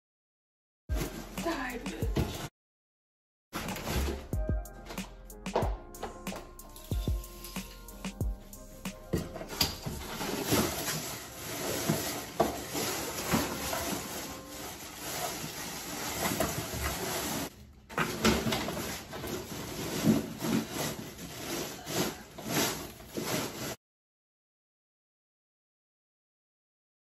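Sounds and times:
branches brushing cardboard box: 0.9s - 2.0s, 6.8s - 17.5s, 18.6s - 23.8s
artificial tree branches rustling: 9.3s - 23.8s.

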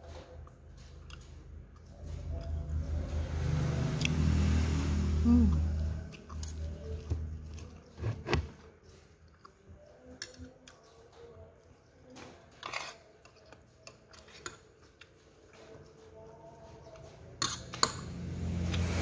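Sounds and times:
person chewing: 0.4s - 2.7s, 5.4s - 8.4s.

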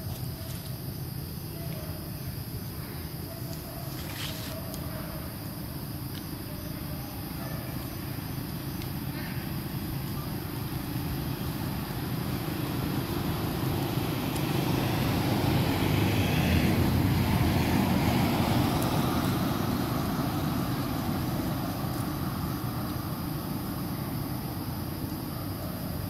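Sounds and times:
vehicle passing by: 11.2s - 23.9s.

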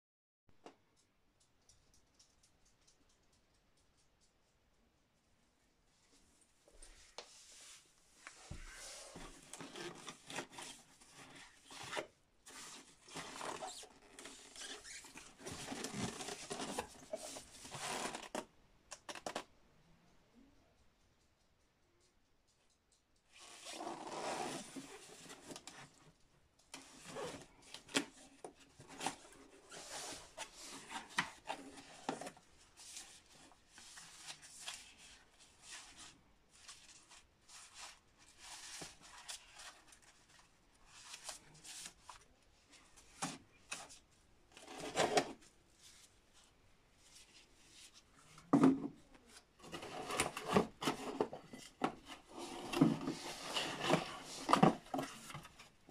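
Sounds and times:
cardboard and paper rustling: 6.8s - 18.5s, 26.8s - 55.9s.

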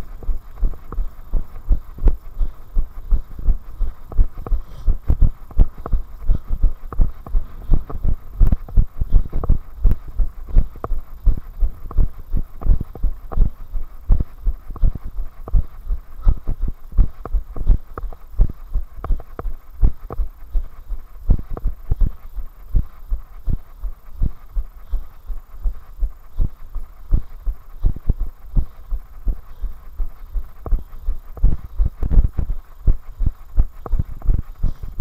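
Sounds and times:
running footsteps on tarmac: 0.0s - 20.7s.

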